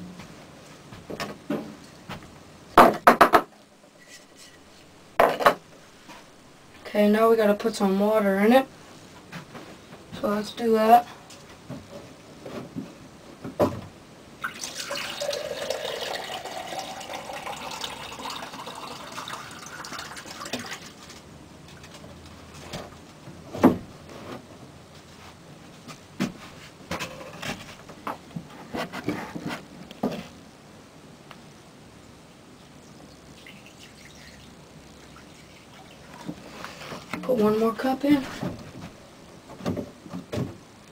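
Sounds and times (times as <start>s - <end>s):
cup knocks and clunks: 2.8s - 3.5s, 5.2s - 5.6s
water filling a cup: 14.4s - 21.2s, 33.0s - 36.4s.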